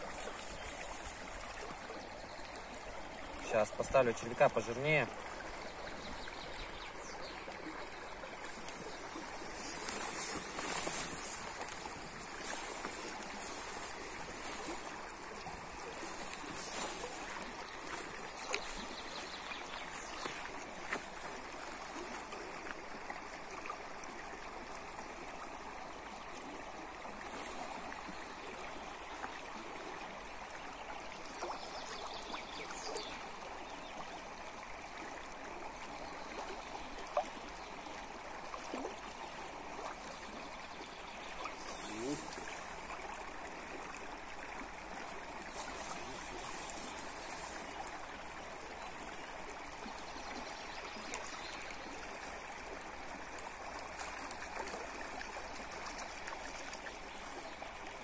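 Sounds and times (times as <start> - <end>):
river rushing over stones: 7.5 - 22.6.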